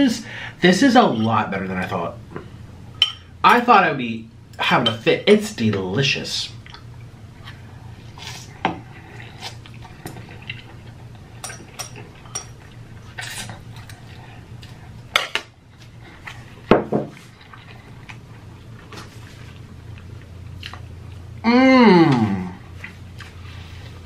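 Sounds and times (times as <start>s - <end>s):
chewing: 6.6s - 15.0s, 15.7s - 21.4s, 22.6s - 24.0s.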